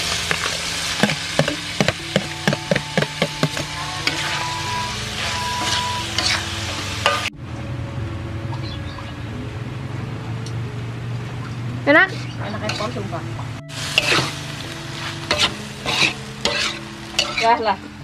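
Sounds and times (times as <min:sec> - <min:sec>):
frying hiss: 0:00.0 - 0:07.3, 0:11.9 - 0:18.0
metal spatula scraping a wok: 0:03.1 - 0:07.3, 0:12.1 - 0:13.1, 0:13.7 - 0:17.7.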